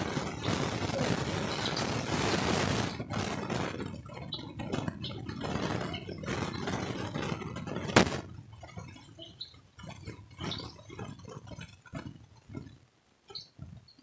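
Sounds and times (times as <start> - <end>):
food frying in oil: 0.0 - 6.6.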